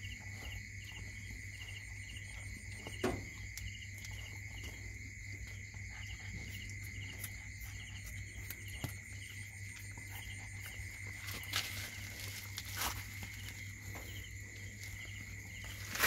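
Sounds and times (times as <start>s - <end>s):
insects chirping: 0.0s - 16.0s.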